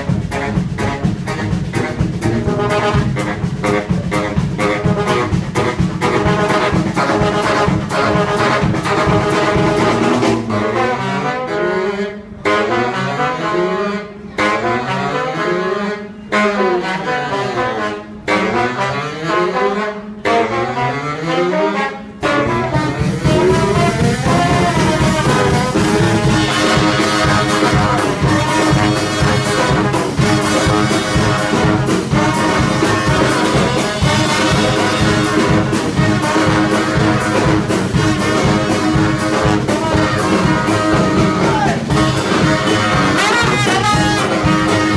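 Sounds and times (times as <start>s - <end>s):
drum kit beat: 0.0s - 11.0s, 22.2s - 44.9s
brass band playing: 0.0s - 44.9s.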